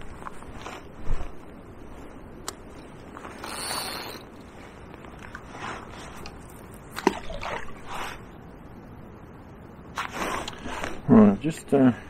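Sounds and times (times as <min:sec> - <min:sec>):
wind: 0:00.0 - 0:12.0
fishing reel clicks and rustles: 0:03.2 - 0:04.3.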